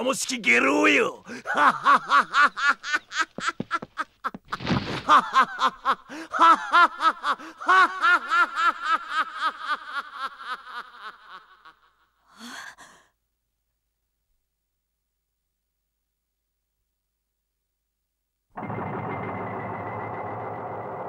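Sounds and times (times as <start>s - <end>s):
man laughing loudly: 1.3s - 12.0s.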